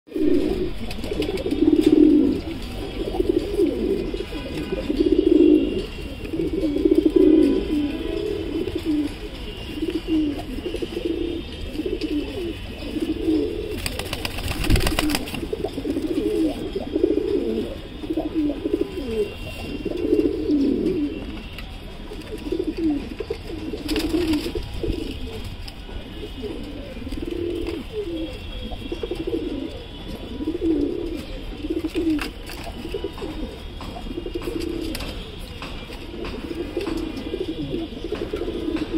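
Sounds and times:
pigeons cooing: 0.1 - 21.5, 22.1 - 38.9
pigeon wings flapping: 13.8 - 15.5.

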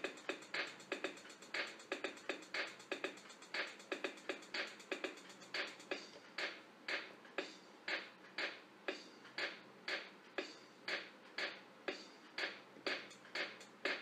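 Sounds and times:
music with percussive beat: 0.0 - 14.0.

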